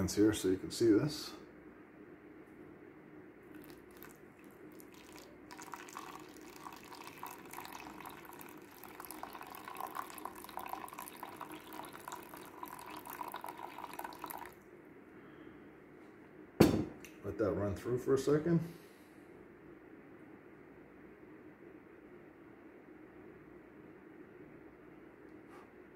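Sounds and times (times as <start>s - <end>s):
water trickling through filter: 3.5s - 14.6s
sharp knock: 16.6s - 17.0s.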